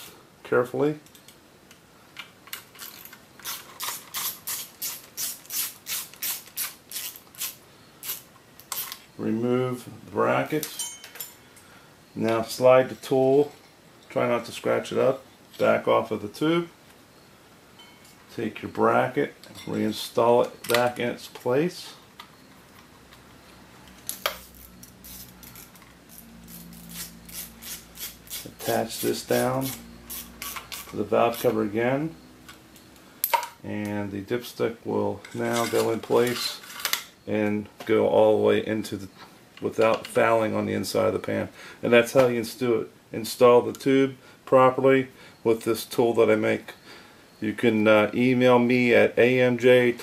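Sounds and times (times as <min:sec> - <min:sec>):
ratchet wrench clicking: 0:03.4 - 0:09.0, 0:24.1 - 0:28.5.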